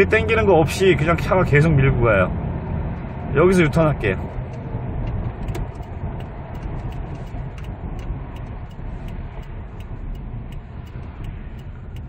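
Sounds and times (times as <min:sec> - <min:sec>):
engine and road rumble in cab: 0:00.0 - 0:12.0
turn signal relay clicking: 0:04.5 - 0:12.0.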